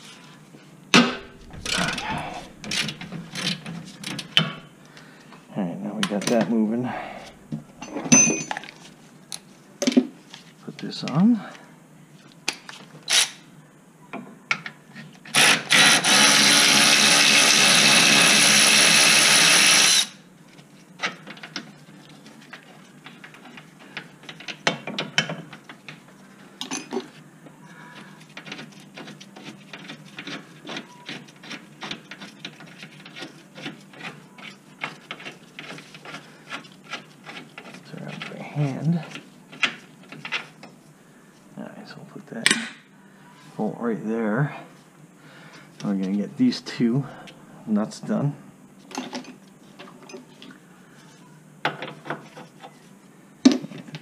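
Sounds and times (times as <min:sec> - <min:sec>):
hand tools clinking: 0:07.8 - 0:08.8
power tool whirring: 0:15.3 - 0:20.2.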